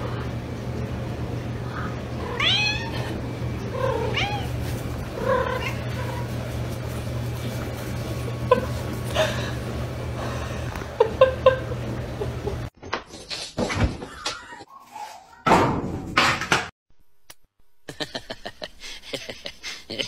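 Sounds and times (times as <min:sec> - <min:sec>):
steady low hum: 0:00.0 - 0:12.7
cat meowing: 0:02.2 - 0:03.2, 0:03.8 - 0:04.6.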